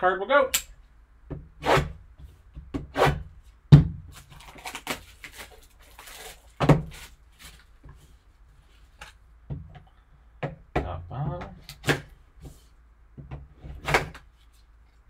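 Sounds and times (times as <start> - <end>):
plastic wrap rustling: 4.0 - 9.2.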